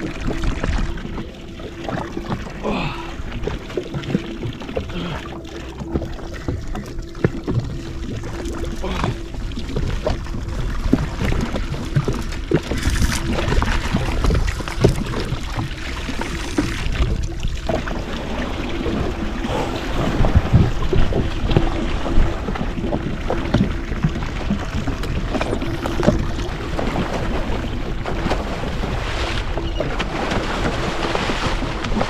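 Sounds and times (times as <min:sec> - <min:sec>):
faint hum: 0:00.0 - 0:29.8
water splashing against hull: 0:00.0 - 0:32.0
wind buffeting microphone: 0:16.8 - 0:32.0.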